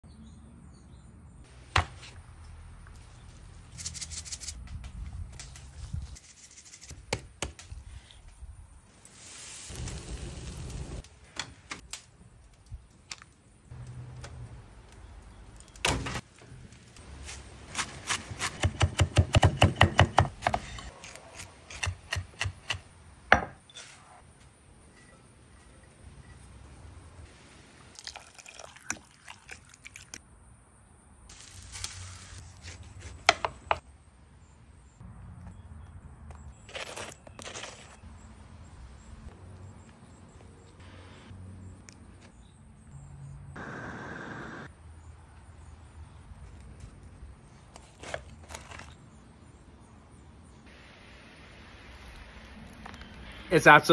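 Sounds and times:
meat hissing on grill: 0:09.1 - 0:11.0
liquid pouring into bowl: 0:27.9 - 0:30.2.

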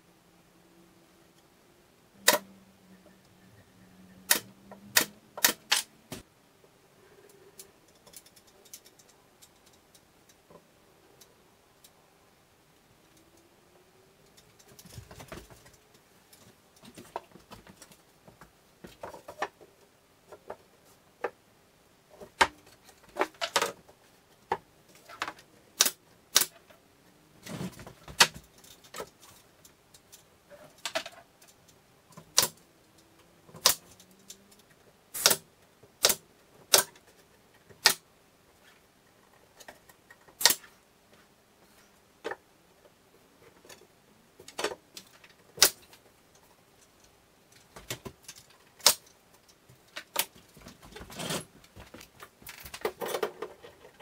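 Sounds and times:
nail gun firing into plywood: 0:35.2 - 0:35.4, 0:36.0 - 0:36.9.

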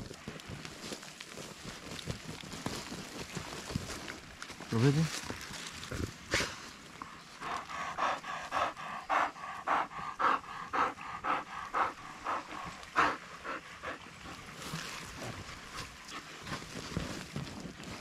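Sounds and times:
dog panting: 0:06.4 - 0:14.6.

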